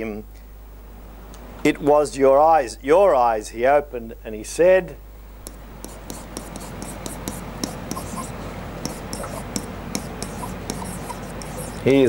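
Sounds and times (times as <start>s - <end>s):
low mains hum: 0.0s - 12.0s
stylus scratching on whiteboard: 5.5s - 12.0s.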